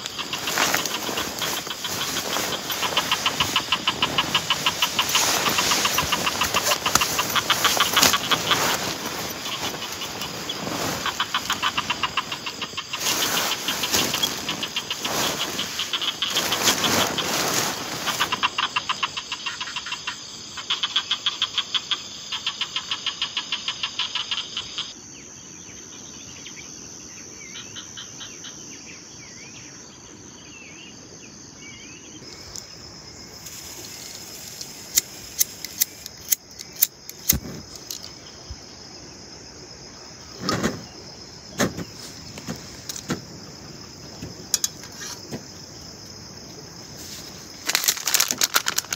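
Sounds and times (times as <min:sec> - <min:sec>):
steady hiss: 0:00.0 - 0:19.6, 0:32.2 - 0:48.9
insects calling in fast pulses: 0:00.0 - 0:48.9.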